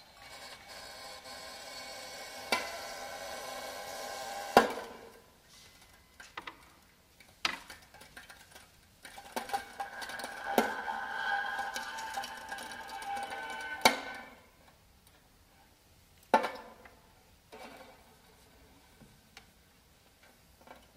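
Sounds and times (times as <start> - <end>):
grainy string drone: 9.4 - 14.5.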